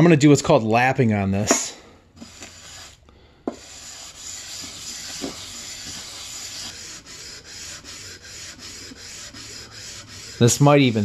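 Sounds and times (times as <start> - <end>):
gritty sanding rubbing: 2.2 - 11.0.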